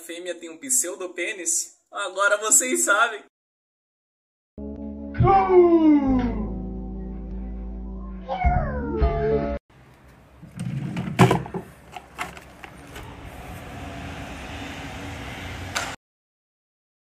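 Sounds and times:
low traffic hum: 9.7 - 16.0.

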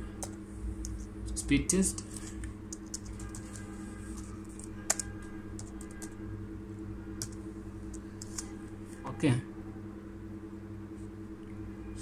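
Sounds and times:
steady low hum: 0.0 - 12.0
keyboard typing: 0.2 - 1.1, 1.8 - 6.2, 7.2 - 8.6.

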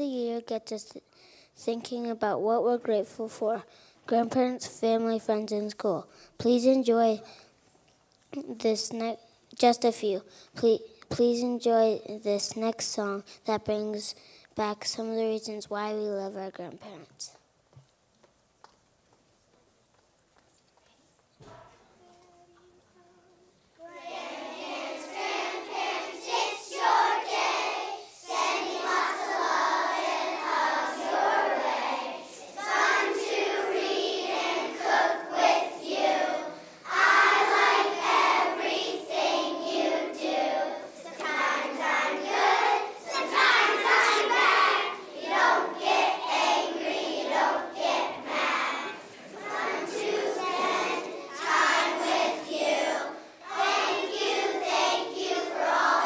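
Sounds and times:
children's choir singing: 23.0 - 56.0.

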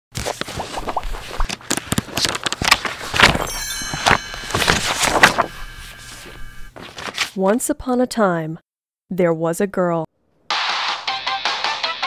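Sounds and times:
shimmering sparkle chime: 3.4 - 4.9.

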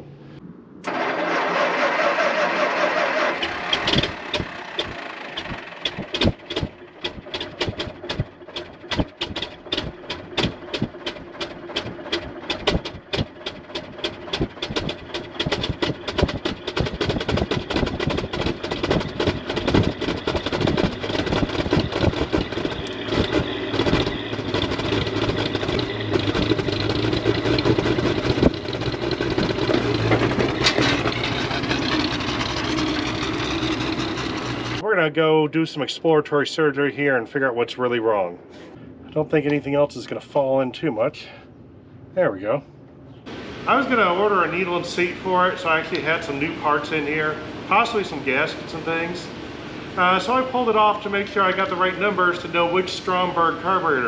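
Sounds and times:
engine running unevenly: 0.0 - 34.8, 43.0 - 54.0
engine cranking: 0.8 - 34.8.

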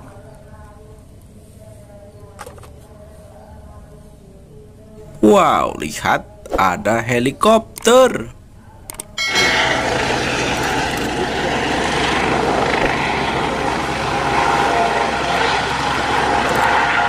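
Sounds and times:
helicopter turbine and rotor noise: 9.2 - 17.0.

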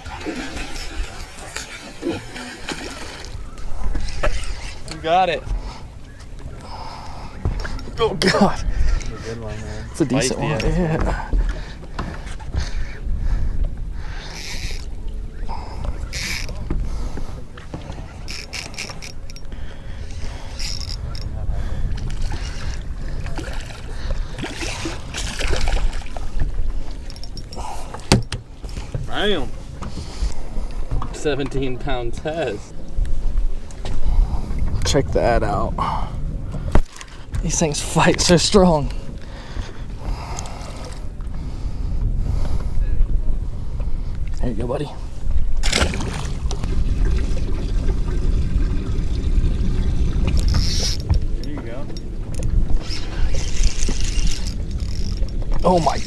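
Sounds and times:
water splashing: 0.0 - 5.8, 22.0 - 27.1, 45.6 - 51.9
wind noise: 0.0 - 31.3, 31.9 - 56.0
water sounds: 0.0 - 56.0
low rumble: 45.0 - 55.6
fish splashing into water: 45.6 - 48.7.

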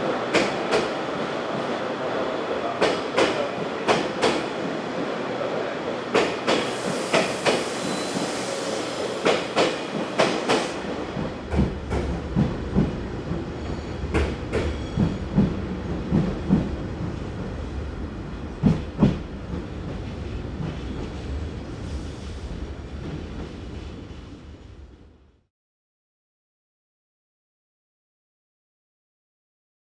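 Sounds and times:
train rumble: 6.1 - 25.4
train wheels clicking over rail joints: 9.2 - 13.0.

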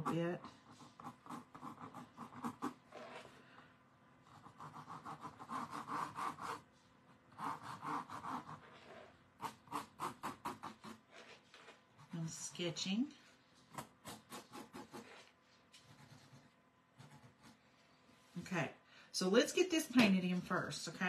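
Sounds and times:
pen scratching on canvas board: 0.0 - 3.3, 4.2 - 6.7, 7.4 - 12.3, 13.6 - 17.8.

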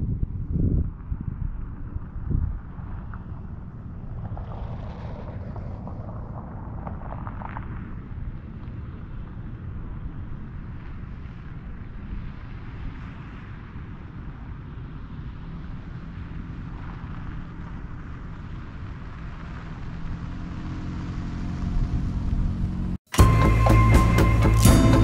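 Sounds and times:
wind buffeting microphone: 0.0 - 22.9
music: 23.1 - 25.0.

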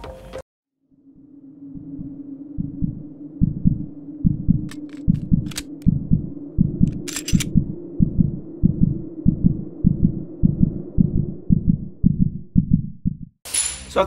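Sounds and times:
steady low hum: 1.0 - 13.3
low double-thump pulse: 1.1 - 13.4
sharp metallic clicks: 4.7 - 5.9, 6.9 - 7.5.

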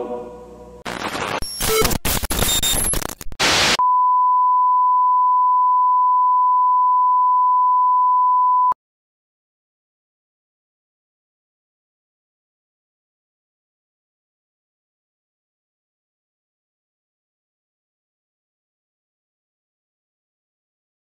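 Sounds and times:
crackling tv static: 0.8 - 3.8.

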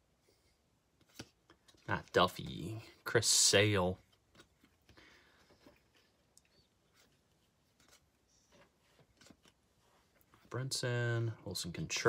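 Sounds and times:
cards sliding soft ticks: 4.0 - 10.4.

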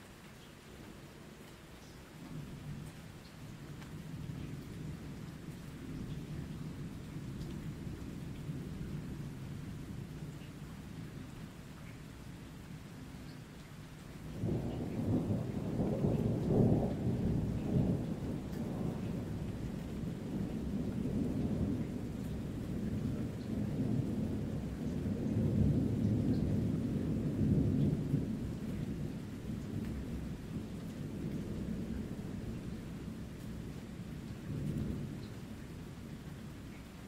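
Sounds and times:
light steady rain: 0.0 - 37.0
thunder rumbling: 14.3 - 35.2.

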